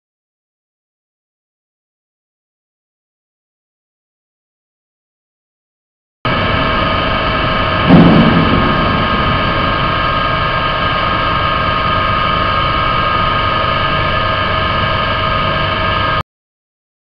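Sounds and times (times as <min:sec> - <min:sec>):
pump machinery hum: 0:06.3 - 0:16.2.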